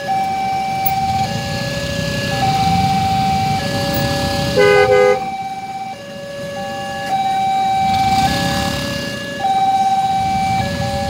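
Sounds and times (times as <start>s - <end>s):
two-tone crossing alarm: 0.0s - 11.0s
motorcycle and car engines idling: 0.1s - 11.0s
horn double toot: 3.6s - 5.4s.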